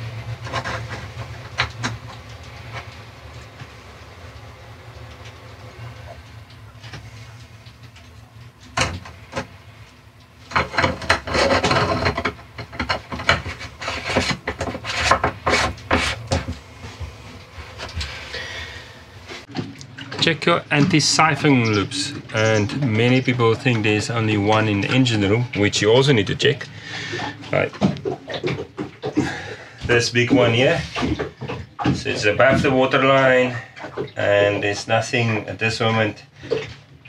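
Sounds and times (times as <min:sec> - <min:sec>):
plastic and hose rubbing and clicking: 0:00.0 - 0:03.8, 0:05.1 - 0:18.4
low steady hum: 0:00.0 - 0:37.0.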